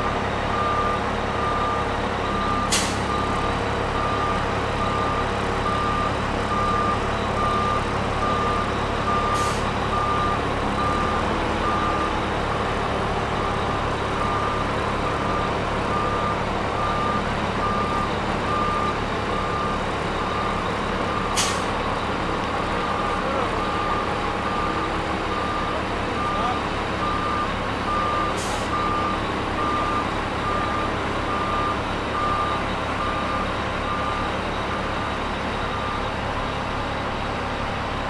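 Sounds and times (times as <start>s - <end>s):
diesel engine under load: 0.0s - 38.0s.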